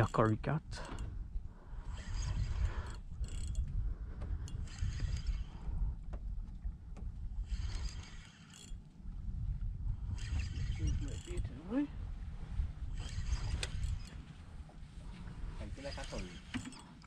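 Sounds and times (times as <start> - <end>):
fishing reel gears whirring: 0.0 - 5.8, 7.4 - 9.0, 10.0 - 11.9, 12.8 - 14.3, 15.6 - 17.0
wind rumble on microphone: 0.6 - 16.5.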